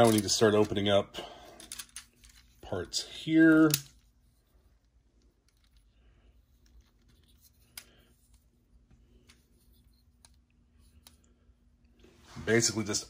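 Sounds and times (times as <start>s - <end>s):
plastic toy parts clicking: 0.0s - 0.3s, 3.6s - 4.0s.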